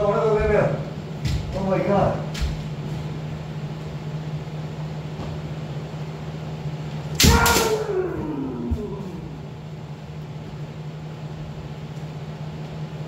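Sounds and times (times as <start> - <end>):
low hum: 0.0 - 13.0
bamboo sword crack: 7.2 - 7.9
person shouting: 7.2 - 9.6.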